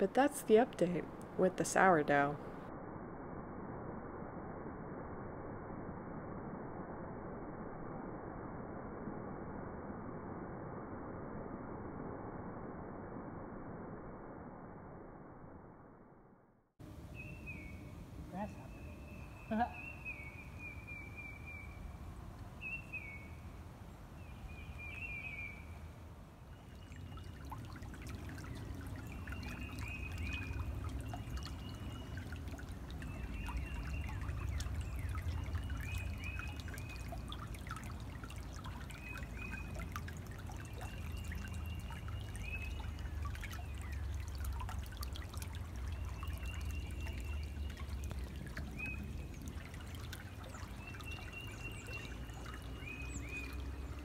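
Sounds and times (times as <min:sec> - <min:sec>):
stream trickling over pebbles: 0:26.4 - 0:54.0.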